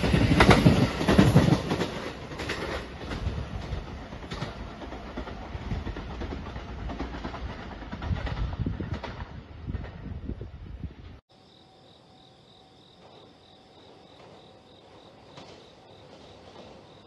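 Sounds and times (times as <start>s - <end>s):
electric train rumbling: 0.0s - 17.0s
insects chirping: 11.3s - 17.0s.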